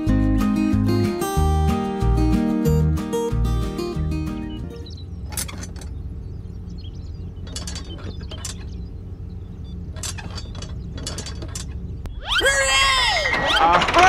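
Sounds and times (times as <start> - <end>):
clicking and rattling: 4.9 - 12.1.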